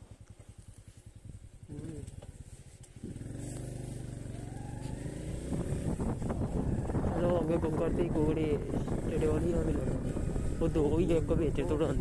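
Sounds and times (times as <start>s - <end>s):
motorcycle engine idling and revving: 0.0s - 12.0s.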